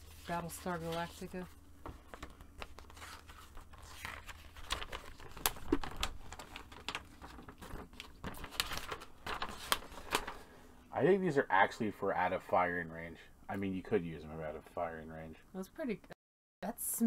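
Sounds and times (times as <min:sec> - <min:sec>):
paper rustling and crinkling: 0:00.0 - 0:10.6.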